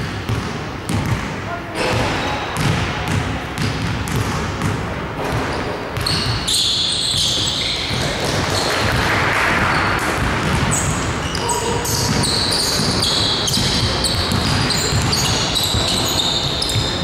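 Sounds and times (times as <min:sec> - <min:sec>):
basketball bouncing on hardwood floor: 0:00.0 - 0:01.3, 0:01.9 - 0:06.4, 0:10.0 - 0:10.9, 0:11.9 - 0:16.0
sneakers squeaking: 0:00.0 - 0:17.0
players' voices echoing: 0:00.3 - 0:17.0.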